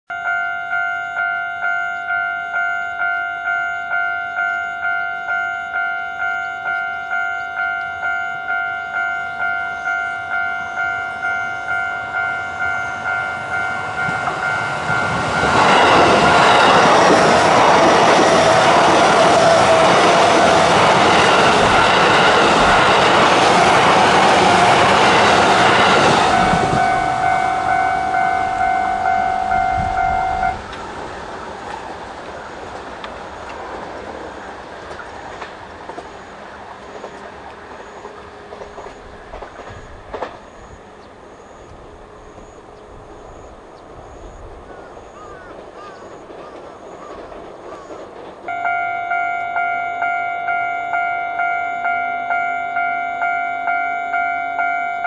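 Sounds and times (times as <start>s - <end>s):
level crossing bell dinging: 0.1s - 16.5s, 25.8s - 30.6s, 48.5s - 55.0s
electric train passing: 0.1s - 55.0s.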